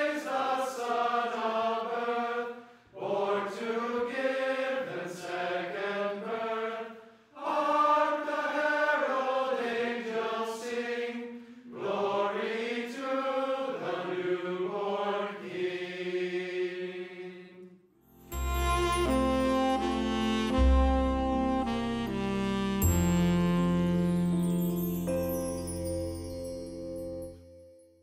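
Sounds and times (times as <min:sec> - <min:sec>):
choir singing unaccompanied: 0:00.0 - 0:17.8.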